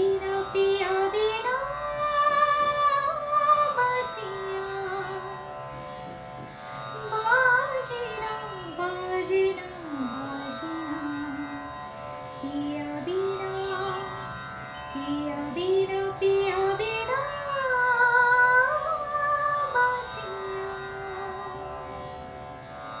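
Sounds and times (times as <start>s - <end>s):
sustained instrumental accompaniment: 0.0s - 18.3s
woman singing slow melody: 7.1s - 11.6s.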